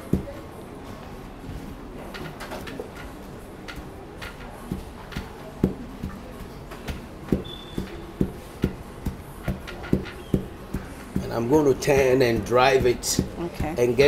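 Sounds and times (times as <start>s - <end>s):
pestle pounding in wooden mortar: 0.0s - 0.4s, 2.1s - 14.0s.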